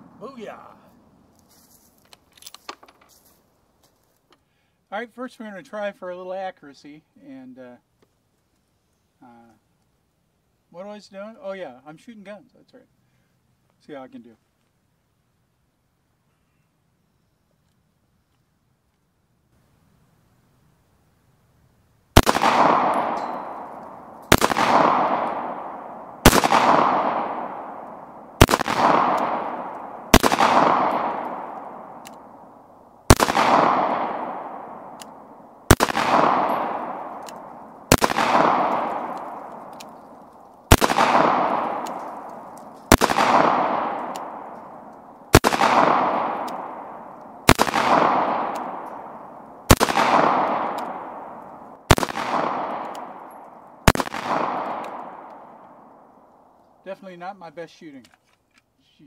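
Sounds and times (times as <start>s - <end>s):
pistol shots echoing: 22.2s - 56.3s.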